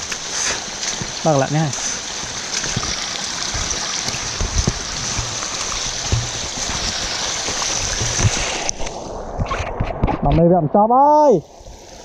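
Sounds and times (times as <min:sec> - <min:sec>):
water rushing over rocks: 0:00.0 - 0:12.0
low thumps: 0:02.3 - 0:10.5.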